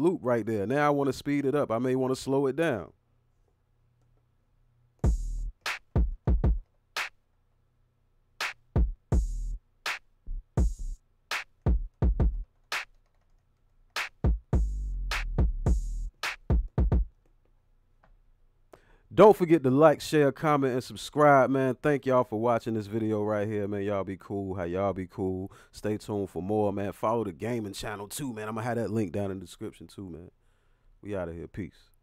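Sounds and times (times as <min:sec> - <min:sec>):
electronic synth beat: 0:05.0 - 0:07.1, 0:08.4 - 0:13.0, 0:14.0 - 0:17.1.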